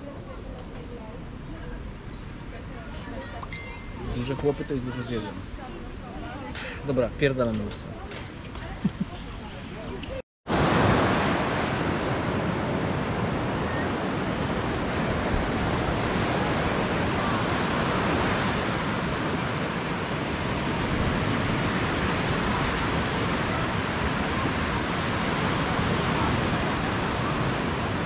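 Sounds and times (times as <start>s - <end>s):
wind: 0.0s - 28.0s
sea surf rushing: 10.5s - 28.0s.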